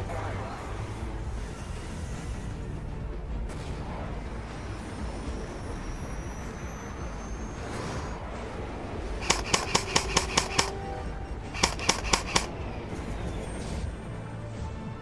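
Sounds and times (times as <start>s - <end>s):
background music: 0.0s - 15.0s
airsoft gun shots: 9.2s - 10.8s, 11.6s - 12.5s.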